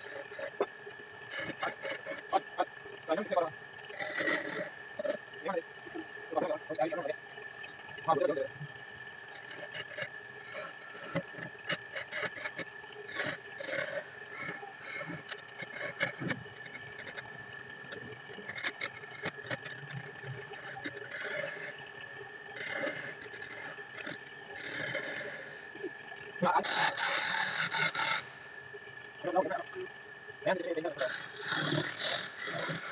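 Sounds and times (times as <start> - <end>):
turning tool scraping wood: 1.3 - 2.4, 9.4 - 17.3, 17.9 - 21.7, 26.6 - 28.3
wood lathe running: 31.0 - 32.9.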